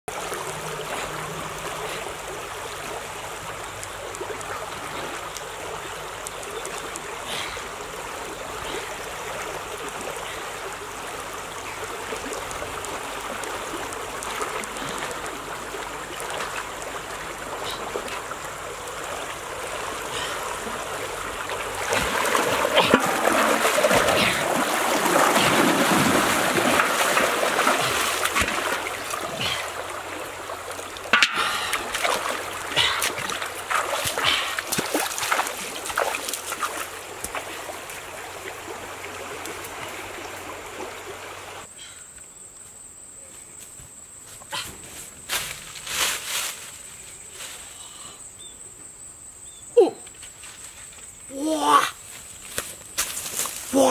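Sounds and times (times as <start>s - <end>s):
person wading through water: 0.1s - 41.7s
stream rushing over rocks: 0.1s - 41.7s, 53.4s - 53.9s.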